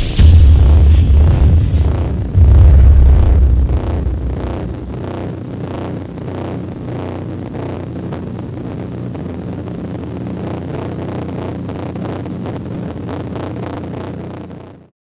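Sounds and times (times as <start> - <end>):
flying saucer rumbling hum: 0.0 - 11.4.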